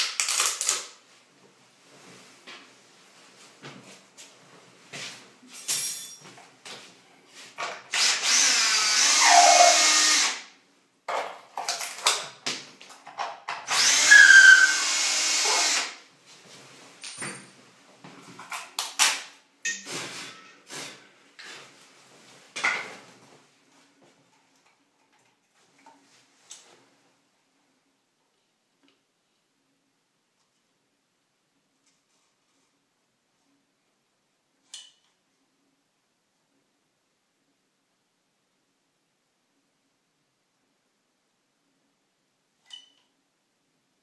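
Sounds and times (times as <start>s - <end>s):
cordless drill running: 7.9s - 10.4s, 13.7s - 16.0s.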